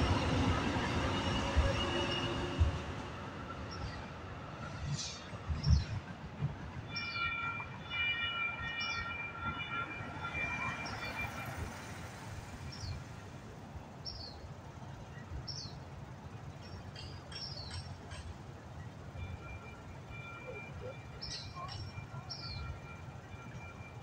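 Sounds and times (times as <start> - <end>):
low traffic rumble: 0.0 - 7.0, 8.8 - 24.0
railroad crossing bell ringing: 6.9 - 13.1, 16.5 - 24.0.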